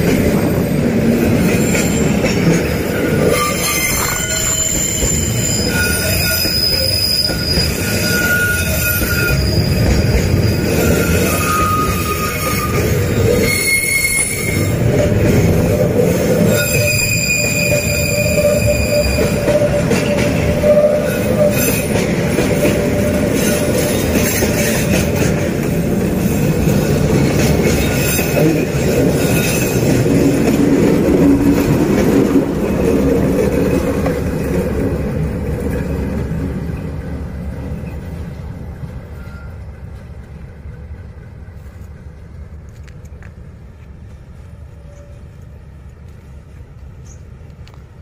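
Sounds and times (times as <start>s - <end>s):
train rolling past: 0.0s - 48.0s
high wheel squeal: 1.4s - 25.2s, 26.2s - 30.3s.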